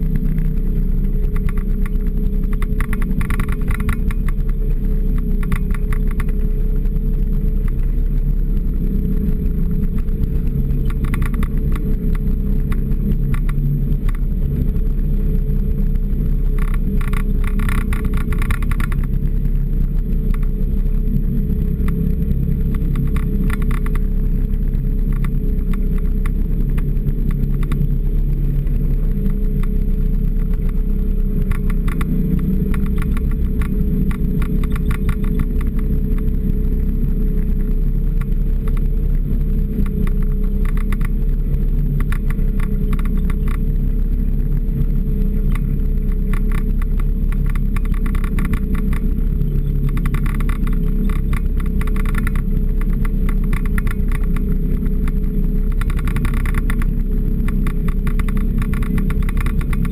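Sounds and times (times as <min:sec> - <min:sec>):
bursts of rattling: 0:00.0 - 0:59.9
off-road vehicle engine running: 0:00.0 - 0:59.9
steady whine: 0:00.0 - 0:59.9.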